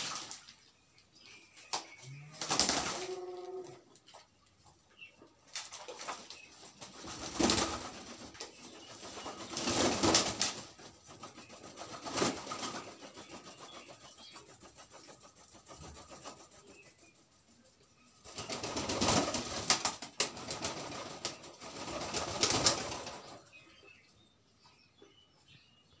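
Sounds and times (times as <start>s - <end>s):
wings splashing water: 0.0s - 0.7s
pigeons flapping wings: 2.4s - 3.3s, 5.5s - 17.0s, 18.2s - 23.4s.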